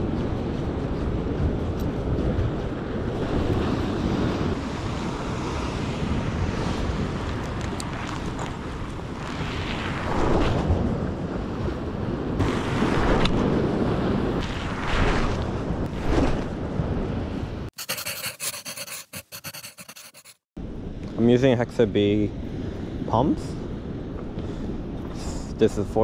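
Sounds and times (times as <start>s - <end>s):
wind buffeting microphone: 0.0s - 17.7s.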